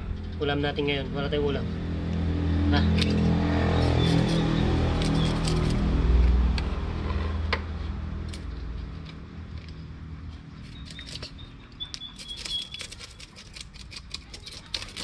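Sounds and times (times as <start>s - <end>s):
knife scraping fish scales: 2.9s - 5.9s, 10.6s - 15.0s.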